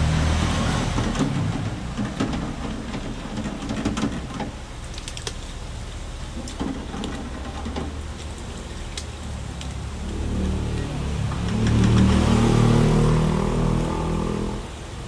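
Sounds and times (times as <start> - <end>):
oil bubbling and crackling: 0.0 - 15.0
sharp popping of frying oil: 1.1 - 12.4.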